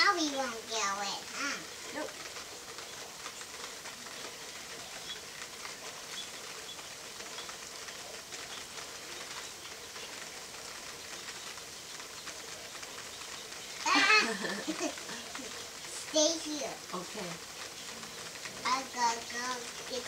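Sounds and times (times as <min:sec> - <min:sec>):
rain pattering: 0:00.0 - 0:20.0.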